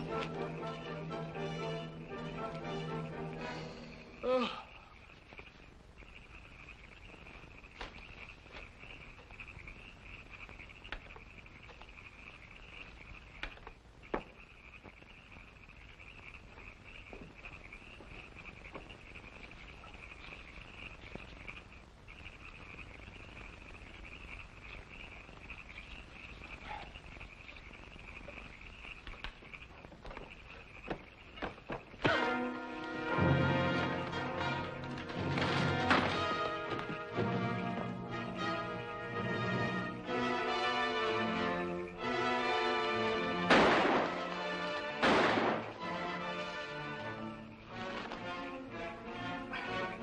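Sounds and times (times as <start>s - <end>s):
night chorus chirring: 0.0s - 50.0s
faint clicks and snaps: 28.9s - 31.5s.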